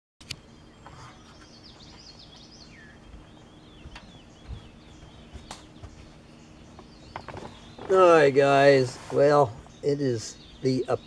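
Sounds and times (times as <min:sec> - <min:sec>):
sharp click: 0:00.2 - 0:00.4
birds chirping and twittering: 0:00.2 - 0:11.0
faint steady hum: 0:00.2 - 0:11.0.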